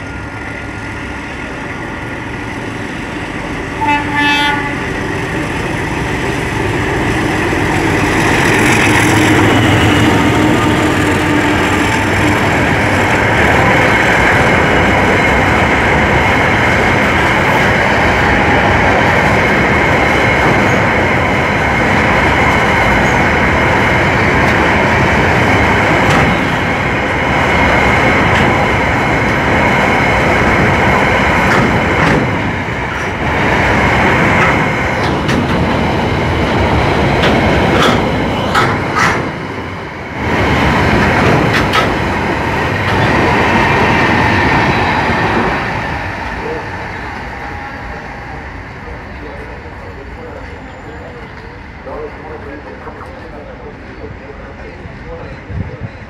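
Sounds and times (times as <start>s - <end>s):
train wheels clattering on rails: 5.0s - 46.6s.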